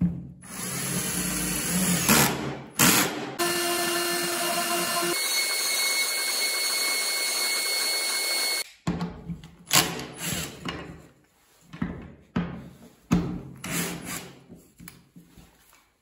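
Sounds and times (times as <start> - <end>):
router spindle high whine: 3.4 - 8.6.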